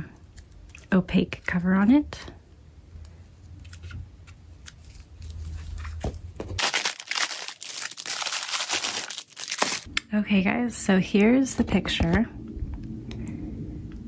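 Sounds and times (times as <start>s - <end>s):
plastic bag crinkling: 4.6s - 9.9s.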